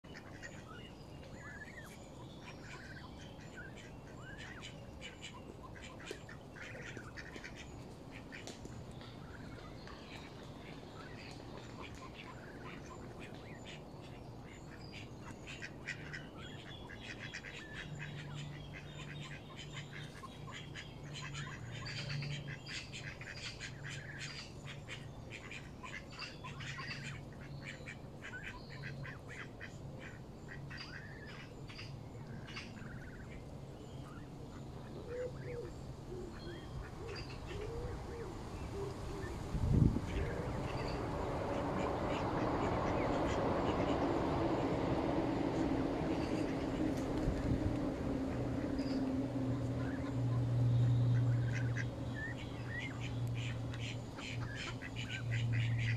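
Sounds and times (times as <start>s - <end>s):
goslings peeping: 0.1s - 8.6s, 9.2s - 33.4s, 34.0s - 55.9s
geese calling: 49.7s - 55.9s.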